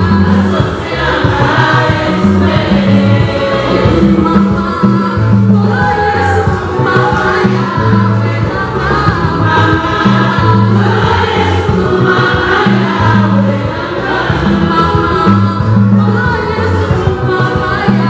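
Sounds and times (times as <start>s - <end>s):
instrumental backing with bass line: 0.0s - 18.0s
lead voices singing: 0.0s - 18.0s
women's gospel choir singing: 0.0s - 18.0s.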